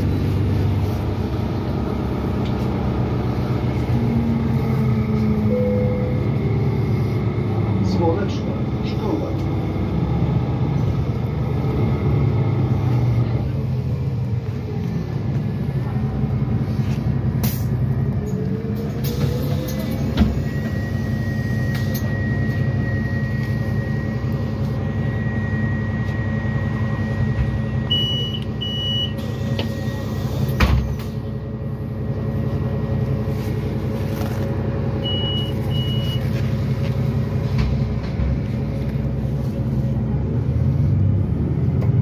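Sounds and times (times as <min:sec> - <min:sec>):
bus engine running: 0:00.0 - 0:42.0
short high door beeps: 0:05.5 - 0:06.2, 0:27.9 - 0:30.2, 0:35.0 - 0:36.3.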